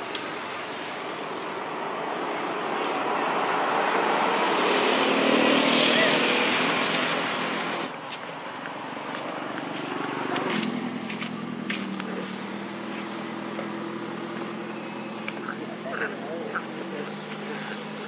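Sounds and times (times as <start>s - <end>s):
motor vehicle engine running: 5.9s - 18.0s
indistinct voices: 13.9s - 18.0s.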